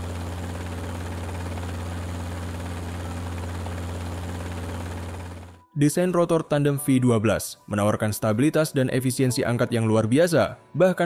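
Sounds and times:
helicopter droning hum: 0.0s - 5.7s.

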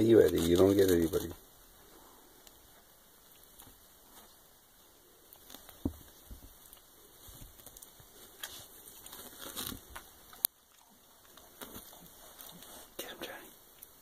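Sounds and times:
bedding rustling: 5.4s - 13.4s
dull thump: 5.8s - 6.5s.

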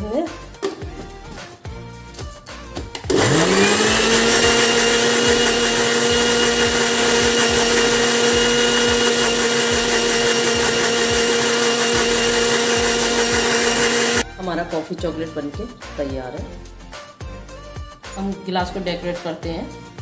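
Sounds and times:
electric blender whirring: 3.0s - 14.2s.

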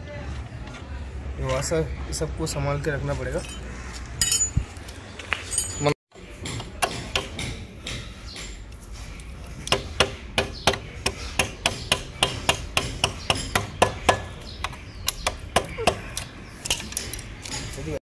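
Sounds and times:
wrench hammering a screwdriver: 6.4s - 8.8s, 9.6s - 17.2s.

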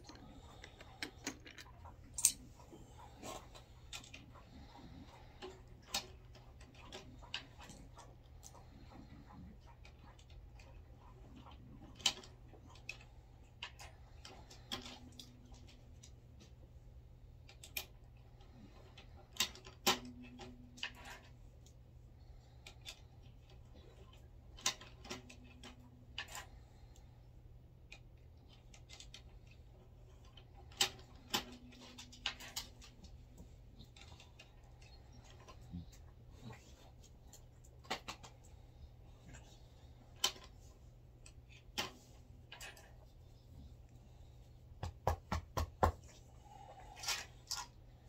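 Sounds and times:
metallic clicks and clinks: 0.0s - 2.5s.

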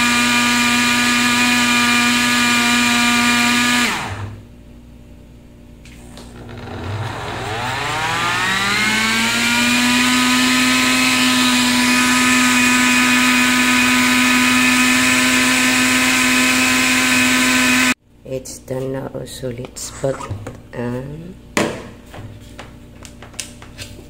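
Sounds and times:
blender motor whining: 0.0s - 4.4s, 6.0s - 18.0s.

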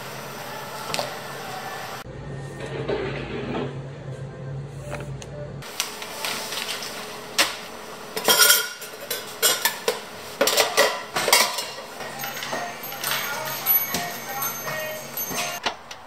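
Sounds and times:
metal pitchers clattering in crate: 8.2s - 15.6s.

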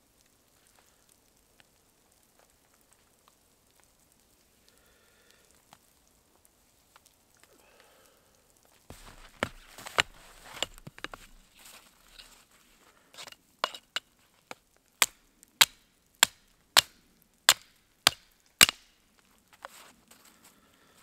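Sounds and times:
low hiss: 0.0s - 21.0s
faint ticks: 0.1s - 8.9s
hatchet chopping branch: 8.9s - 11.4s, 13.2s - 14.0s, 15.0s - 19.0s.

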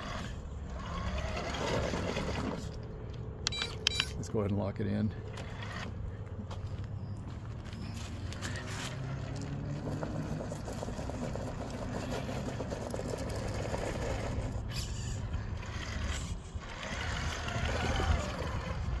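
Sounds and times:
toy car motor whirring: 0.0s - 2.8s, 5.3s - 6.0s, 8.3s - 19.0s.

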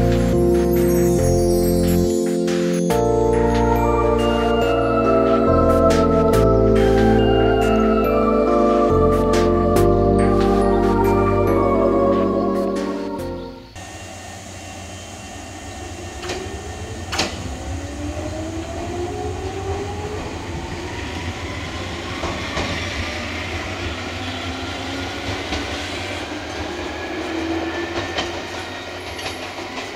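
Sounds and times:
wheels rumbling on rail: 0.0s - 29.9s
electric train motor whine: 3.3s - 29.9s.

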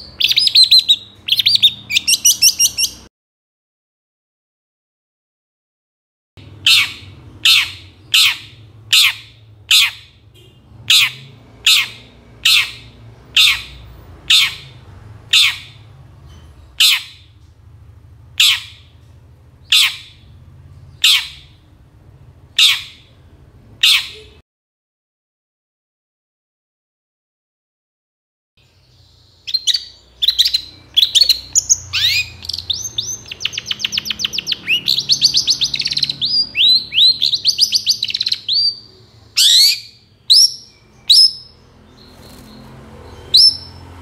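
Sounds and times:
bird squawking calls: 6.6s - 15.9s, 16.8s - 17.3s, 18.4s - 18.9s, 19.6s - 20.3s, 21.0s - 21.6s, 22.6s - 23.1s, 23.8s - 24.4s, 29.5s - 41.6s.

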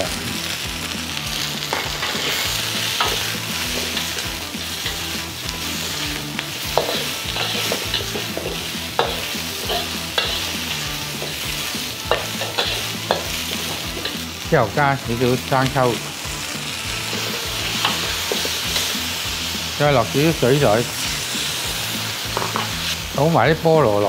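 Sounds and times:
food sizzling in hot oil: 0.0s - 24.0s
metal spatula clinking on wok: 12.1s - 14.2s.

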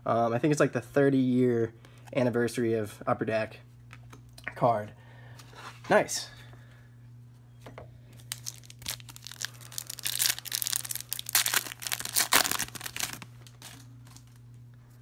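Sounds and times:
foil wrapper tearing and crinkling: 8.2s - 14.4s.

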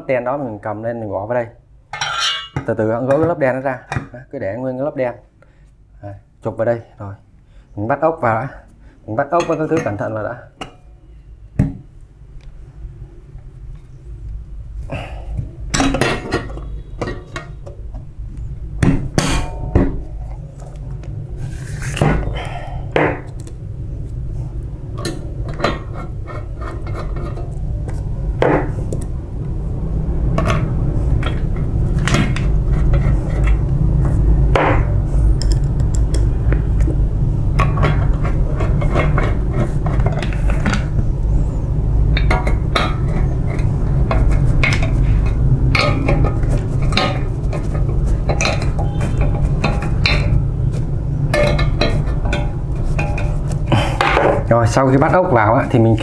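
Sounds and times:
screwdriver and screws clinking on metal: 2.0s - 2.6s
steady low hum: 5.2s - 56.0s.

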